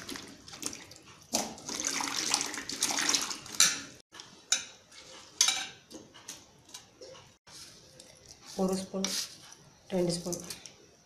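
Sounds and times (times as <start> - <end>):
water splashing and dripping: 0.0 - 3.6.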